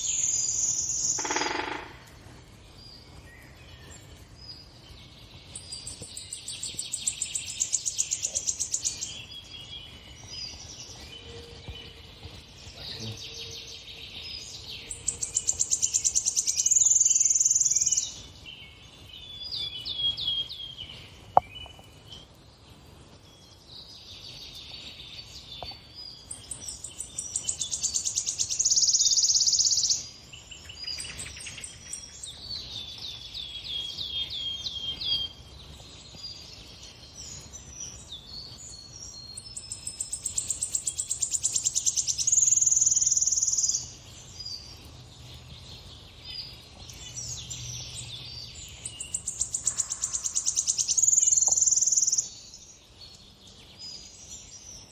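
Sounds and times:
songbird song from a tv: 23.2s - 54.9s.

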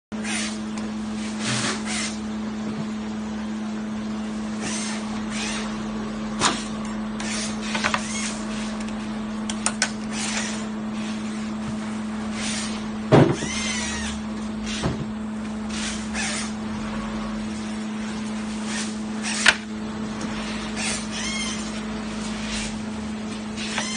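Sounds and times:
machine hum: 0.1s - 23.9s
short squeak: 23.6s - 23.9s.

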